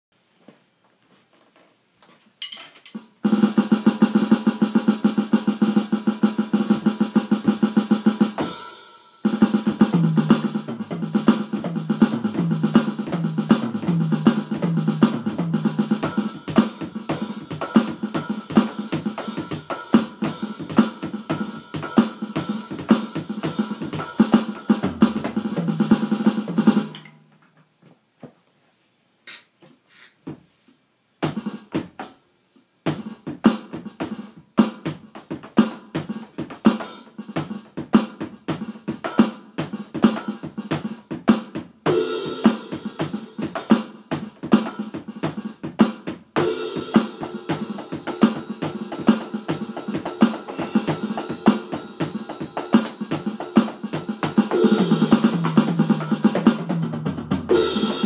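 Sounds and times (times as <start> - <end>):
electronic drum kit rock beat: 3.2 - 27.1, 31.2 - 32.2, 32.9 - 58.0
backing track with bass line: 9.4 - 19.4.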